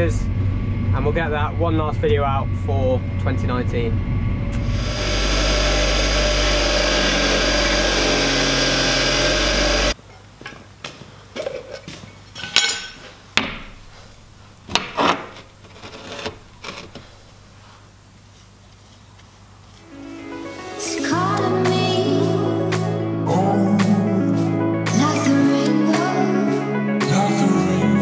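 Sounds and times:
bench grinder grinding metal: 0:04.6 - 0:10.0.

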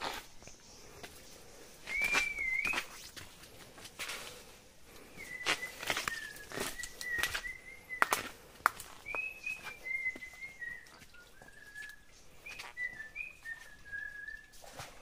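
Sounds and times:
person whistling a slow tune: 0:01.8 - 0:02.9, 0:05.1 - 0:08.3, 0:09.0 - 0:14.9
footsteps on stones: 0:01.8 - 0:15.0.

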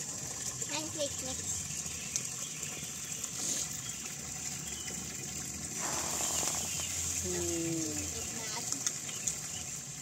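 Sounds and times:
batter pouring: 0:05.5 - 0:08.1.

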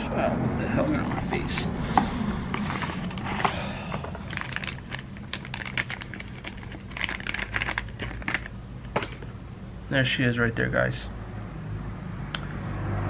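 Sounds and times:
plastic bag crinkling: 0:02.5 - 0:09.3.

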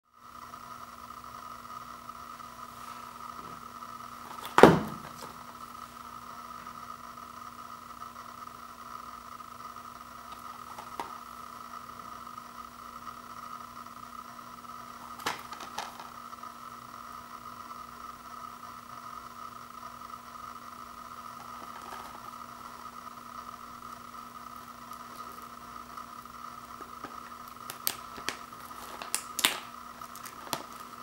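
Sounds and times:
plastic case knocking on floor: 0:04.4 - 0:05.3.

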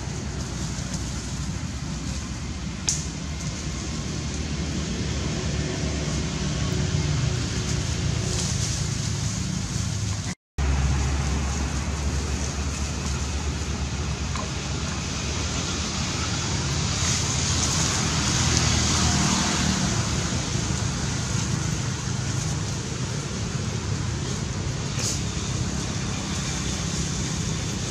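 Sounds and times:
rushing outdoor noise: 0:00.0 - 0:27.9.

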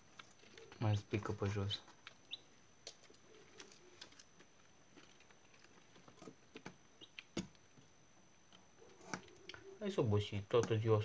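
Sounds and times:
chicks peeping: 0:02.2 - 0:02.6, 0:07.0 - 0:07.3.

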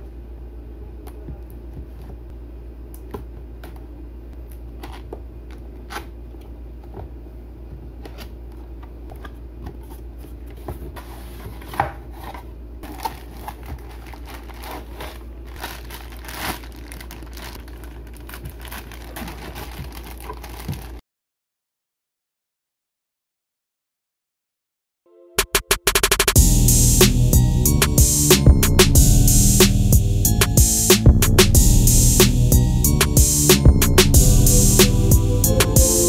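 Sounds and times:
crinkling plastic cut with scissors: 0:12.8 - 0:21.0
steady low hum: 0:26.4 - 0:36.0.

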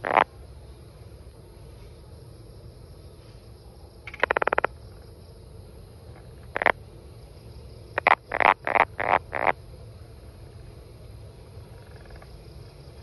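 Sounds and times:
tree frog calling: 0:00.0 - 0:00.6, 0:04.0 - 0:05.2, 0:06.1 - 0:09.8, 0:11.5 - 0:13.0.

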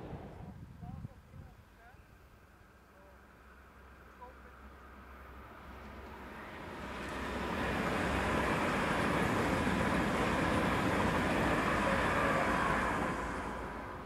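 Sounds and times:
faint train whine: 0:00.0 - 0:14.0
train wheels rumbling on rails: 0:05.7 - 0:14.0.

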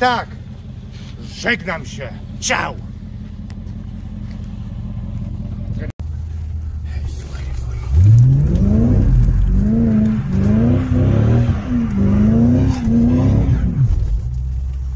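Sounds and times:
car engine revving hard: 0:07.9 - 0:14.2.

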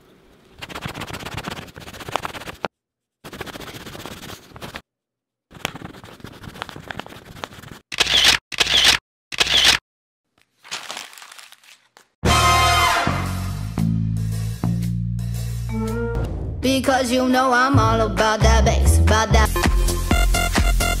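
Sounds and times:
crayons scribbling on paper: 0:00.6 - 0:04.8, 0:05.5 - 0:07.8.

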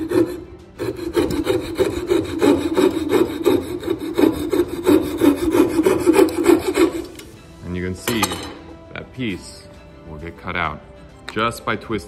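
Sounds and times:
saw cutting wood: 0:00.0 - 0:07.4.

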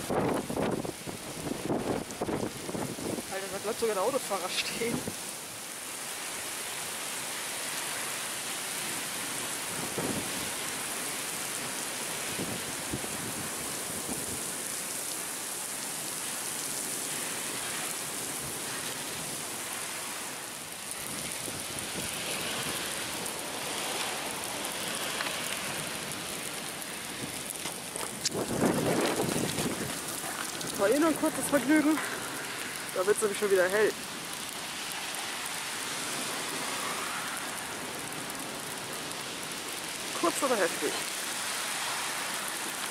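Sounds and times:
heavy rain pouring: 0:00.0 - 0:42.9.

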